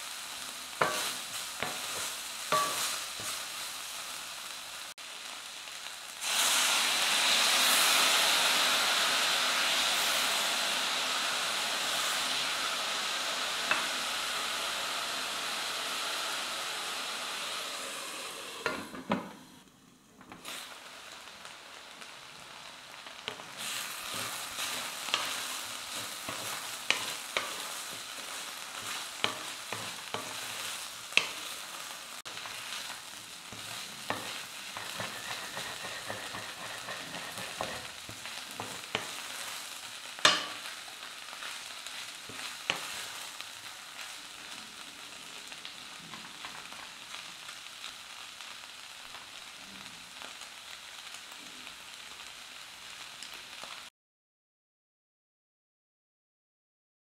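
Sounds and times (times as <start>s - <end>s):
eggplant sizzling in oil: 0.0s - 53.9s
spatula scraping and knocking pan: 0.8s - 3.5s, 18.6s - 19.4s, 23.3s - 31.6s, 33.5s - 39.6s, 40.2s - 40.8s, 42.2s - 43.2s.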